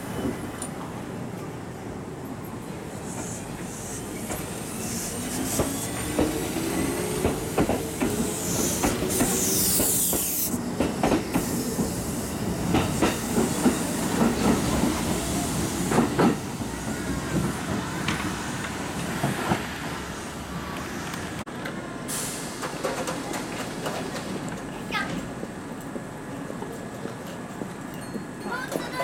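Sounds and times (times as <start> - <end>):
train wheels clacking: 3.1 - 12.0, 12.6 - 15.2, 22.2 - 25.2.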